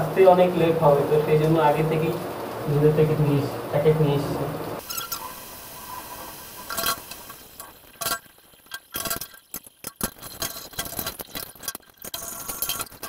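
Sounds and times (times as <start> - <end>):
running tap water: 0.0 - 13.0.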